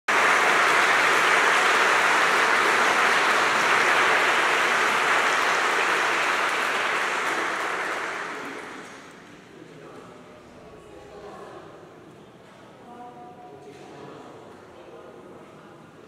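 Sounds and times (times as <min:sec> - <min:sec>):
audience applauding in a hall: 0:00.1 - 0:09.5.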